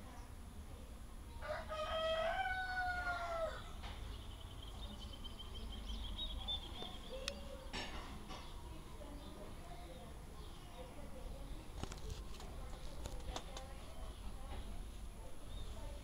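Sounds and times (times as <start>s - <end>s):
rooster crowing: 1.4s - 3.7s.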